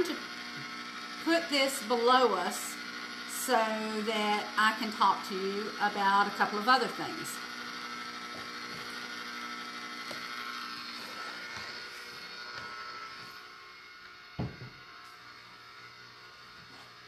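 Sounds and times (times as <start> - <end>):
ice cream maker motor humming: 0.0 - 17.0
thump: 14.4 - 14.7.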